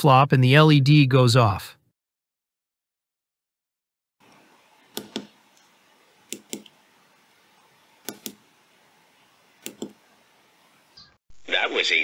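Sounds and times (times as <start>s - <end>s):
push-button switches clicking: 4.9s - 5.3s, 6.3s - 6.7s, 8.0s - 8.4s, 9.6s - 10.0s.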